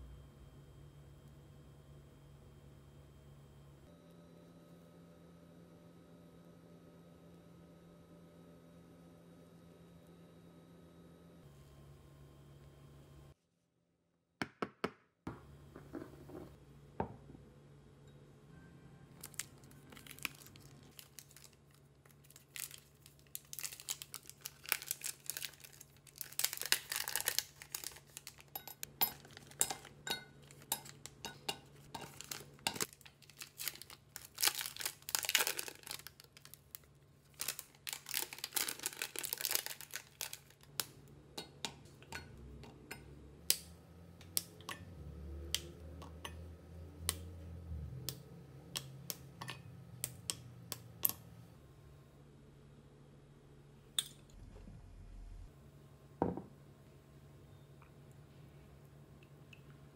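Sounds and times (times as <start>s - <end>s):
wrapper crinkling and tearing: 19.1s - 31.1s, 32.0s - 40.8s.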